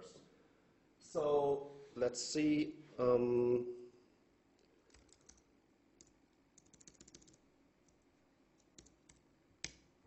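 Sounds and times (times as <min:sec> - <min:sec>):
faint keyboard typing: 0:04.6 - 0:09.9.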